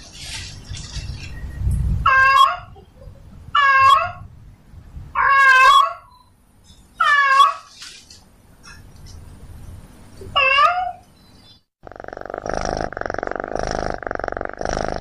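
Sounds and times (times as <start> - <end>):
cat meowing loudly: 5.2 - 6.0, 10.4 - 11.0.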